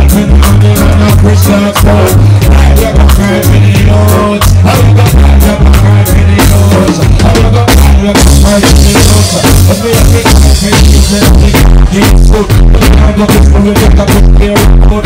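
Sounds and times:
drum kit beat: 0:00.0 - 0:15.0
heavy bass line: 0:00.0 - 0:15.0
reggae band playing: 0:00.0 - 0:15.0.

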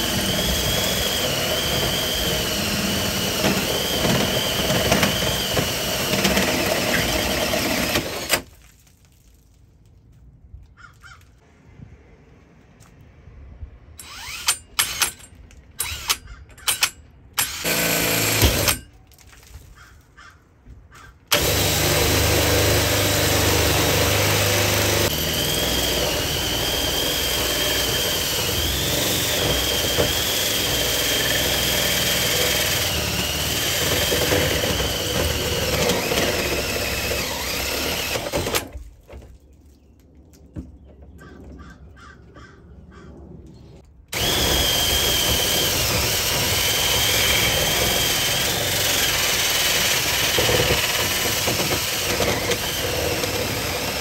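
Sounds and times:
drill with hole saw cutting steel: 0:00.0 - 0:08.5, 0:14.0 - 0:18.9, 0:21.3 - 0:38.8, 0:44.2 - 0:54.0
drill trigger blips: 0:14.0 - 0:18.8, 0:21.3 - 0:38.7, 0:44.2 - 0:54.0.

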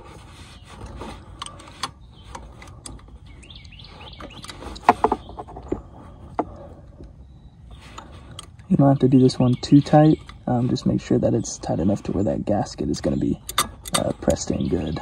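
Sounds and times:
birds chirping: 0:00.0 - 0:15.0
wrench clicking on metal nut: 0:13.4 - 0:14.1.

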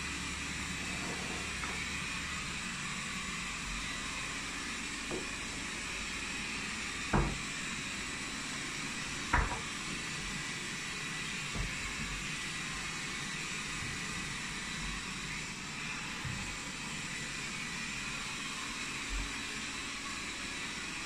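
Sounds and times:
robot vacuum whirring: 0:00.4 - 0:06.3.

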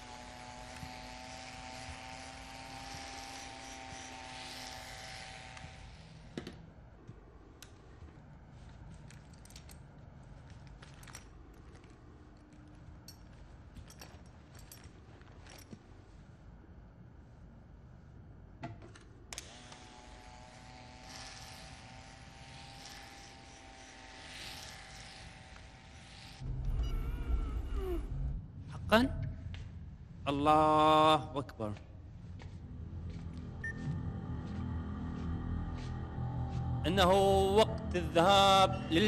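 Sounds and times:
small clicks and metallic handling: 0:08.9 - 0:15.8.

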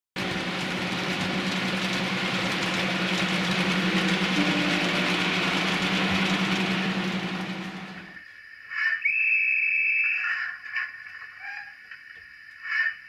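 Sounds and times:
model locomotive engine idling sound: 0:00.2 - 0:08.2.

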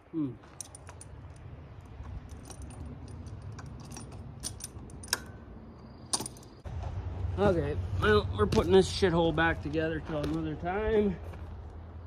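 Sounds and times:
metal parts clinking: 0:00.4 - 0:05.4, 0:06.0 - 0:06.6.

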